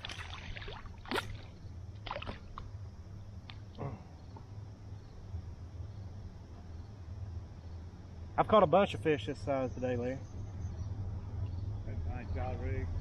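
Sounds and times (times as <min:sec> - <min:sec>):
water splashing: 0:00.0 - 0:02.7
steady low hum: 0:00.0 - 0:13.0.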